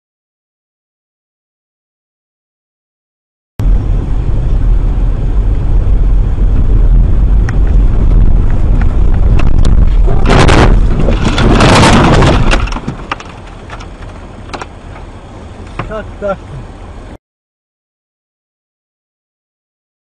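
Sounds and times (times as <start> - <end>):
car engine and road rumble: 3.6 - 17.2
loud bursts of noise: 8.1 - 13.2.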